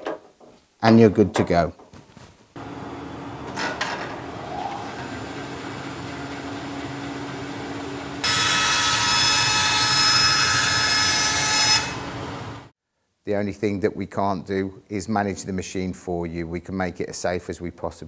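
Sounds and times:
bandsaw humming: 2.6 - 12.6
saw blade whining through wood: 4.2 - 12.1.

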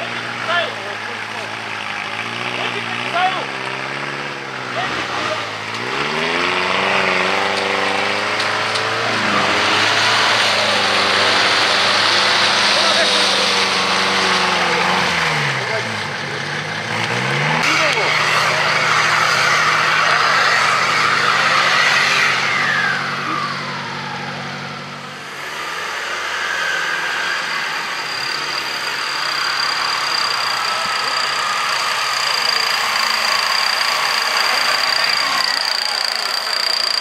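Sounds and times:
off-road engines revving: 0.0 - 37.0
thin high whine: 18.0 - 37.0.

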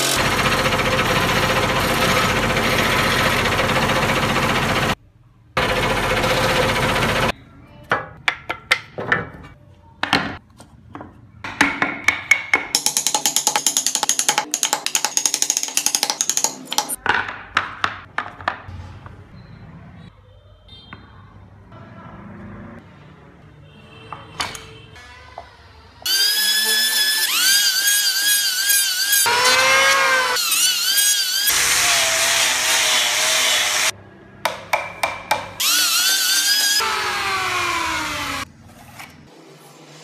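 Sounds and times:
scroll saw cutting wood: 0.0 - 5.0, 26.1 - 33.9, 35.6 - 38.5.

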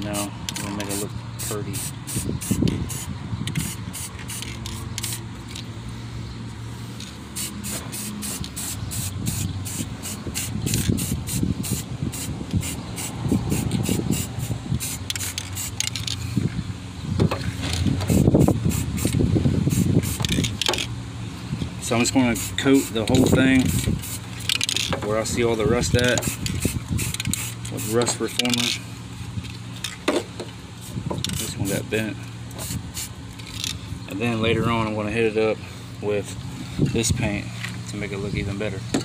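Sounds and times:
aerosol spray can hissing: 1.4 - 5.2, 7.4 - 16.0, 18.1 - 20.4.

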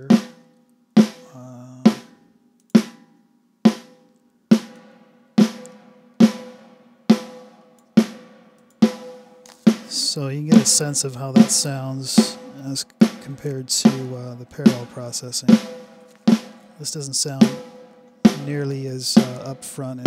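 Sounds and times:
snare drum hits with reverb: 8.8 - 20.0.

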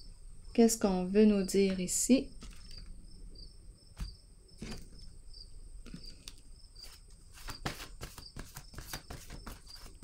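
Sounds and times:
cards clicking and rustling: 2.4 - 3.0, 5.9 - 10.0.

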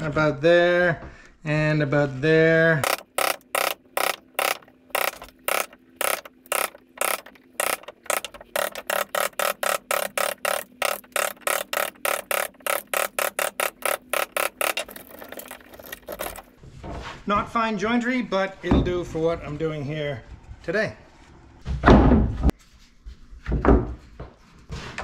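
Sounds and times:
hammer striking chisel into wood: 2.8 - 14.9.

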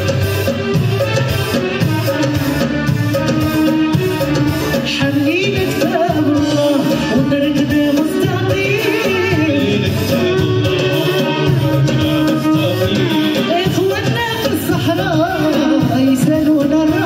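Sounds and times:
violin accompaniment: 0.0 - 17.0
woman singing: 4.7 - 17.0.

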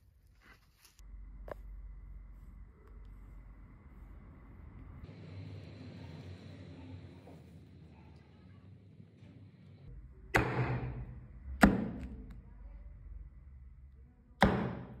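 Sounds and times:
knife chopping on wooden board: 10.4 - 11.0, 11.6 - 12.3, 14.4 - 15.0.

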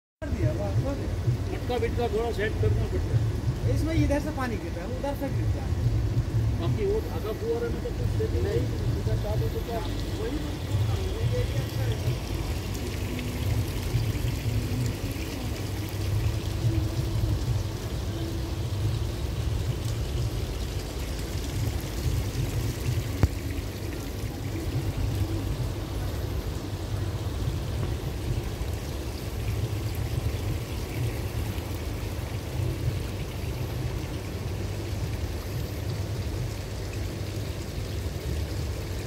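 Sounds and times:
fountain water splashing: 0.2 - 39.0
low rumble: 5.1 - 35.5.

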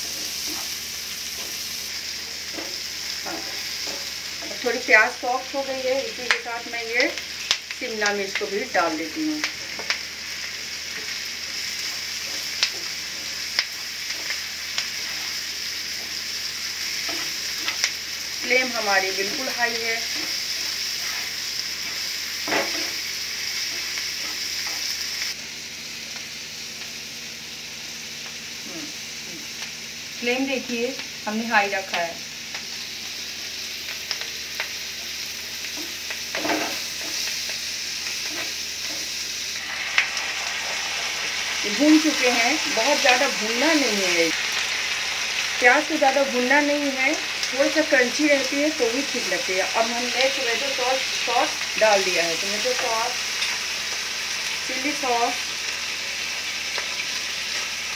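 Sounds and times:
vegetables sizzling in oil: 0.0 - 57.9.

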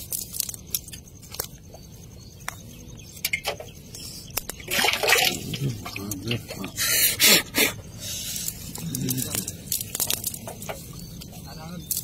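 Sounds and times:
fishing net clicks and rustles: 8.4 - 12.0.

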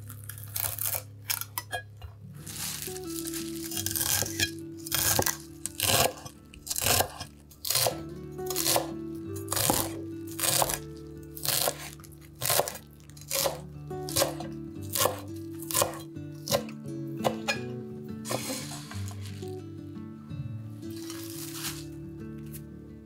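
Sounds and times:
soft background music: 0.0 - 23.0
knife chopping on cutting board: 3.8 - 8.9, 9.5 - 10.8, 11.4 - 17.7, 18.3 - 19.4.

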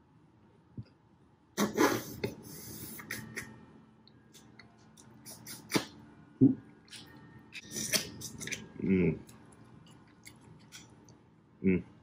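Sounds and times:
lip smacks and clicks: 4.3 - 6.0, 6.9 - 8.7, 9.3 - 11.2
wet mouth sounds: 4.4 - 6.0, 6.9 - 9.4.

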